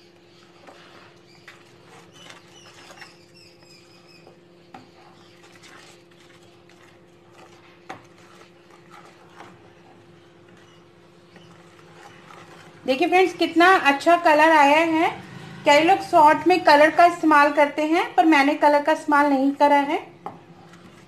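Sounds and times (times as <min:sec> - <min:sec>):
spatula scraping a pan: 0:00.2 - 0:13.3, 0:20.3 - 0:21.0.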